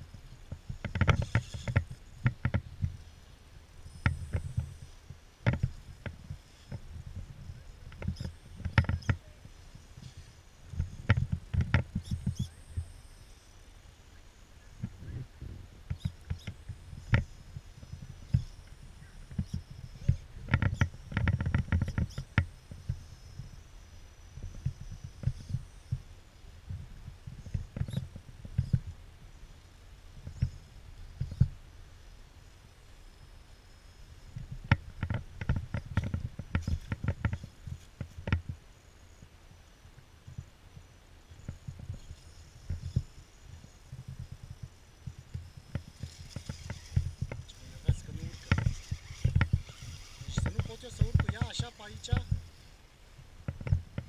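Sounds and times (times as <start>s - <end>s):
tyres knocking and scraping on rock: 45.4s - 52.5s.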